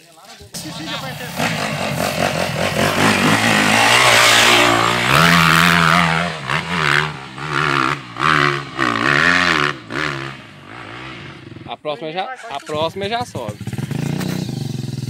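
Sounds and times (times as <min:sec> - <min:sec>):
dirt bike engine revving: 0:00.6 - 0:11.8, 0:12.6 - 0:15.0.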